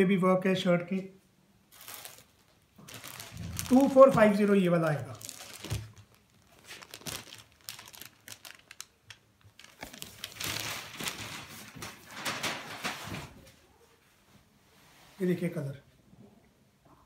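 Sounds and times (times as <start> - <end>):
fabric rustling and crinkling: 1.7 - 13.6.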